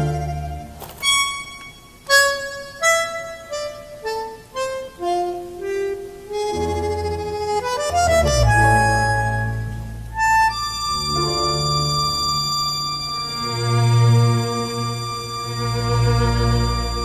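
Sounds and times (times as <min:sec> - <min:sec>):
low bass notes: 0:00.0 - 0:01.2, 0:06.3 - 0:17.0
bandoneon melody: 0:00.0 - 0:17.0.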